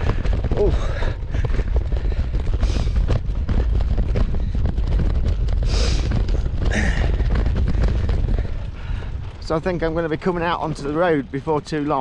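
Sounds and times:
bike rattling knocks: 0.0s - 9.0s
wind on microphone: 0.0s - 11.4s
tyres rumbling on rough ground: 0.0s - 12.0s.

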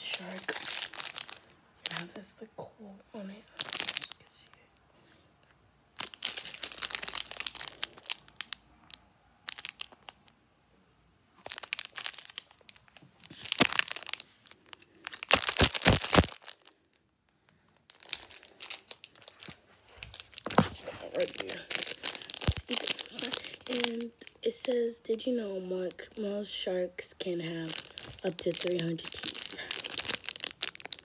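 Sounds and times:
plastic snack pouch crinkling: 0.0s - 2.2s, 3.5s - 4.6s, 6.0s - 10.3s, 11.4s - 24.8s, 27.4s - 31.0s.

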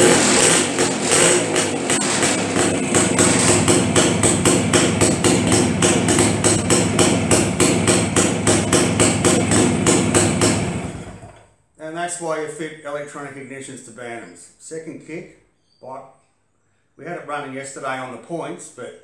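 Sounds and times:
two-stroke engine idling: 0.0s - 11.4s.

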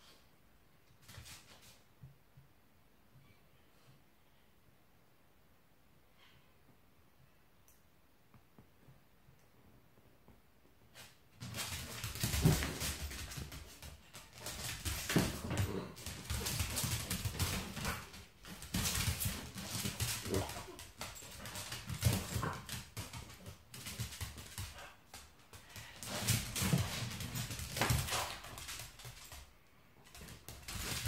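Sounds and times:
dog scrambling on wooden floor: 11.4s - 31.0s.

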